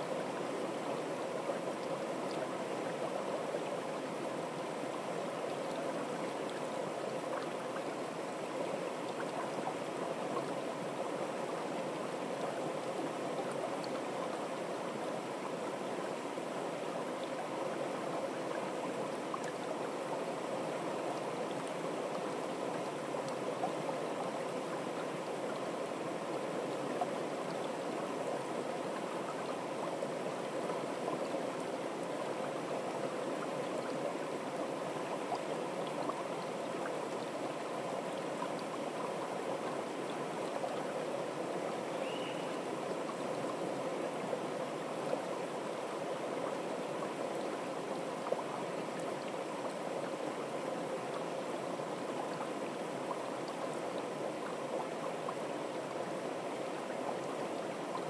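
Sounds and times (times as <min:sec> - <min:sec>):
stream water rushing: 0:00.0 - 0:58.0.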